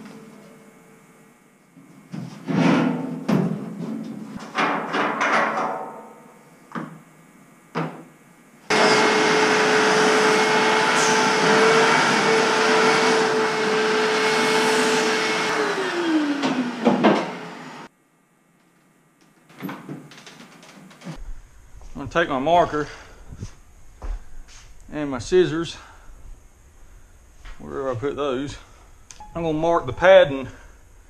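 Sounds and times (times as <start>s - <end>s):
vacuum cleaner running: 0.0s - 7.0s, 8.6s - 17.9s.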